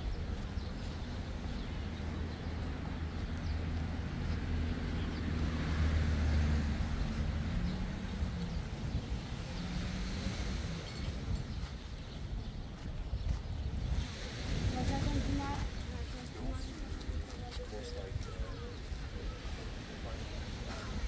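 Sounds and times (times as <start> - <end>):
vehicle engine passing: 4.0 - 11.9.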